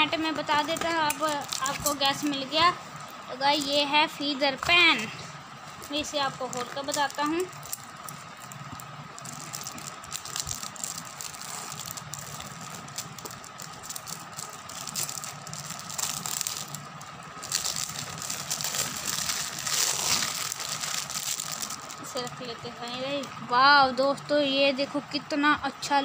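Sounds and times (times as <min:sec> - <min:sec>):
packaging rustling and clicking: 0:05.7 - 0:22.0.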